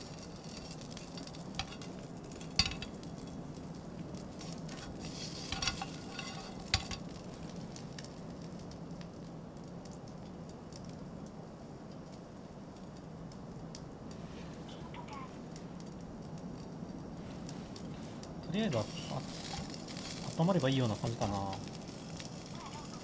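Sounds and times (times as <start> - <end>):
meat sizzling in a pan: 0.0 - 8.6, 17.3 - 23.0.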